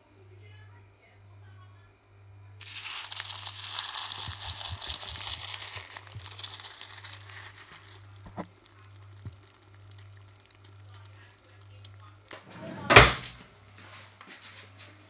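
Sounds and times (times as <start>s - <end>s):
milk splashing into bowl: 2.6s - 12.3s
cereal crackling and popping: 2.6s - 12.4s.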